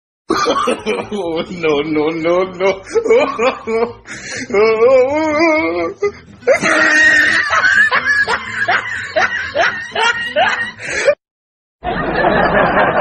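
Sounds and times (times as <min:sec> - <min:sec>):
high wavering laughter: 0:00.3 - 0:01.7, 0:02.7 - 0:04.7, 0:06.0 - 0:11.2, 0:11.8 - 0:13.0.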